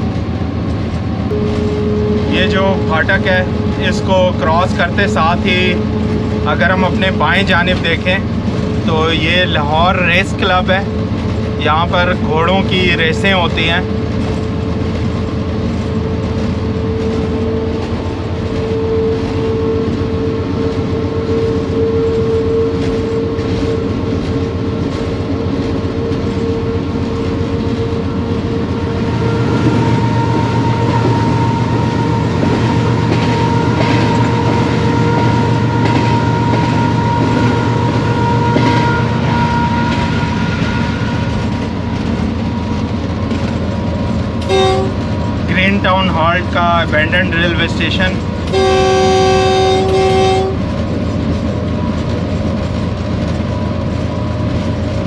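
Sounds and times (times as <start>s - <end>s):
locomotive engine drone: 0.0s - 55.0s
wheels clicking over rail joints: 47.7s - 55.0s.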